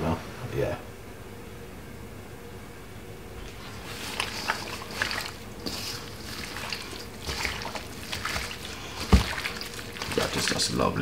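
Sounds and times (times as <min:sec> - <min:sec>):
hands squelching meat in marinade: 0:03.4 - 0:10.8.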